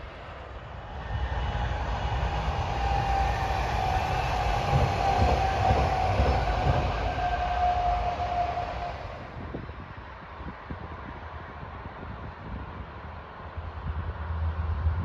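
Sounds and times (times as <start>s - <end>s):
train wheels rumbling on rails: 0.0s - 15.0s
train motor whine: 0.6s - 9.6s.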